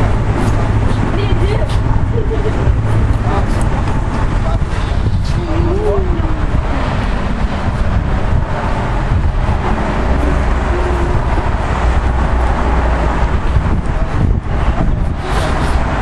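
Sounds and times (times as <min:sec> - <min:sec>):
low rumble of traffic and wind: 0:00.0 - 0:16.0.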